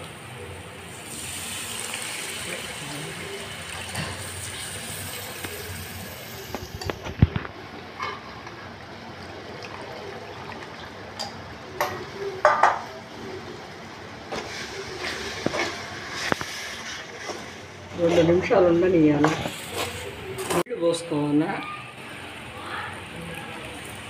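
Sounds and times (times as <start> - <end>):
curry base hissing in pan: 0.4 - 6.8, 14.3 - 17.7.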